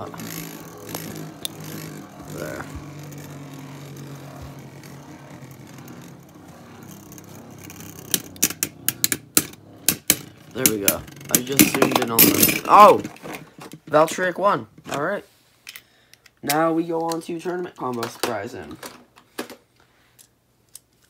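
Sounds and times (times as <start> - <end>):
spinning tops whirring: 0.0 - 13.3
spinning tops clashing clicks: 5.8 - 13.0.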